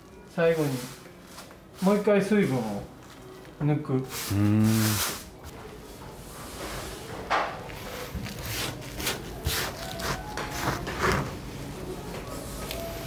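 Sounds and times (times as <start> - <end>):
tea leaves rustling on wood: 0.3 - 3.3.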